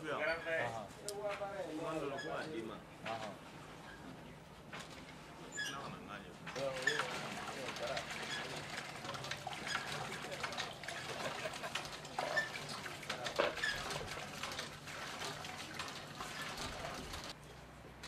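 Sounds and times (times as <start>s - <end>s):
hand water pump working: 6.5s - 17.4s
water pouring into pot: 6.6s - 17.4s.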